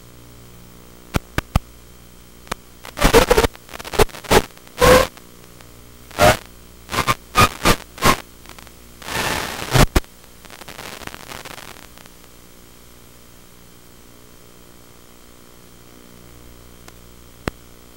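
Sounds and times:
faint steady hum: 0.0s - 17.9s
crackling radio static: 1.0s - 17.9s.

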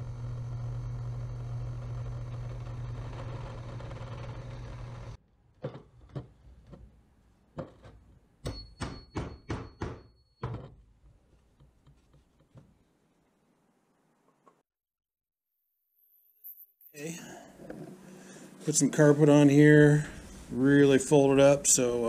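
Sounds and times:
drill press motor hum: 0.0s - 5.2s.

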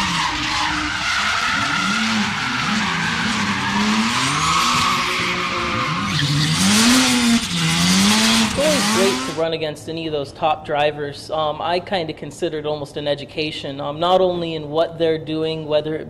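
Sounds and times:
tyres screeching: 0.0s - 9.4s
car engines revving: 0.0s - 9.6s.

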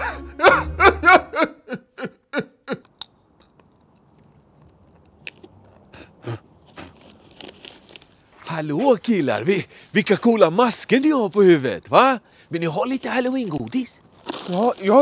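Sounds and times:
man wailing sobbing cries: 0.0s - 2.5s
crisp clicks: 2.8s - 5.8s
faint chewing: 2.8s - 8.4s.

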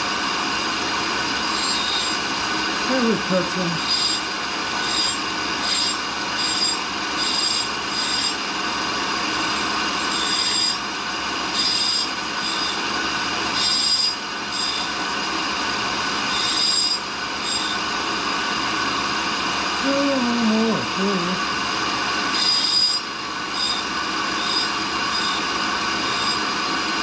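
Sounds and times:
grinding wheel against dressing tool: 1.1s - 8.5s, 9.1s - 15.1s, 15.8s - 18.0s, 22.2s - 27.0s.

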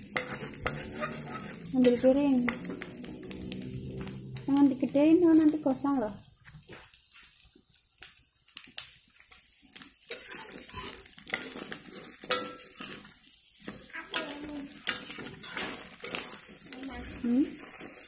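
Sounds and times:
wooden spatula scraping a wok: 0.0s - 4.2s, 10.1s - 18.0s
egg sizzling: 0.0s - 18.0s.

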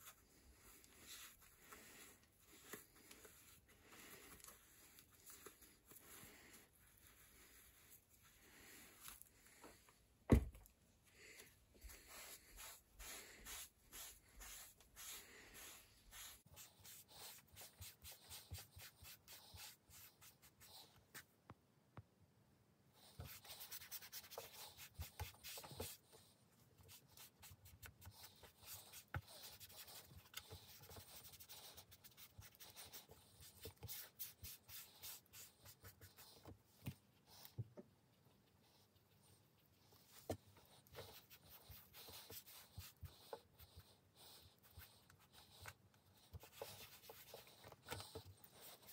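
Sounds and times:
cloth rubbing a saddle: 11.8s - 20.5s.

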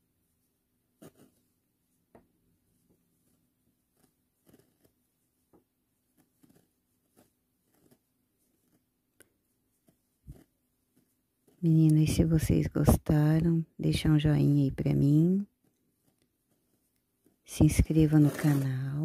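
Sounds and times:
crochet hook clicking: 3.9s - 5.0s, 6.1s - 12.0s.

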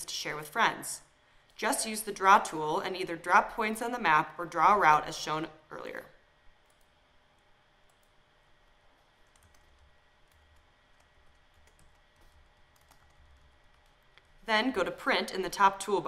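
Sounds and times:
keyboard typing: 6.6s - 8.2s, 8.9s - 14.4s.

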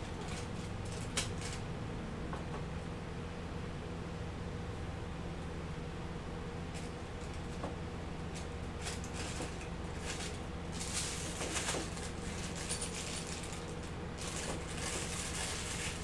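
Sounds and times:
steady low hum: 0.0s - 16.0s
plastic piping bag crinkling: 10.8s - 16.0s.

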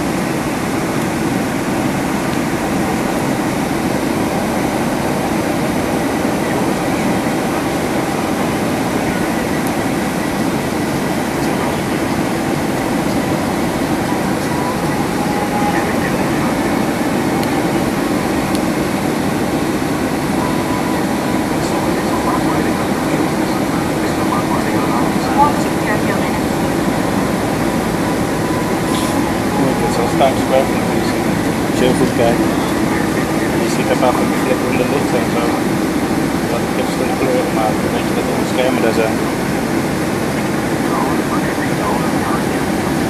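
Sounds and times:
airplane cabin engine roar: 0.0s - 43.0s.

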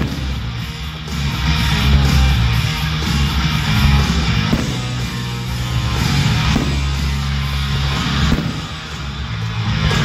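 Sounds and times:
firework bursts popping: 0.0s - 0.5s, 4.4s - 5.3s, 6.0s - 7.4s, 8.0s - 9.2s
rock music with electric guitar: 0.0s - 10.0s.

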